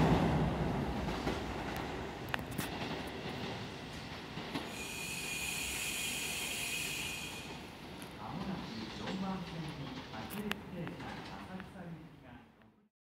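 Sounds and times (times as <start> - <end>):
train running noise: 0.0 - 12.0
high wheel squeal: 4.7 - 7.6.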